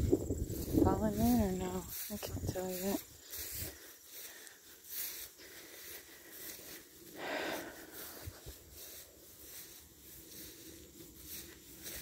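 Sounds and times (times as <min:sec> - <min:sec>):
faint outdoor background noise: 0:00.0 - 0:12.0
breathy exhale: 0:04.2 - 0:08.2.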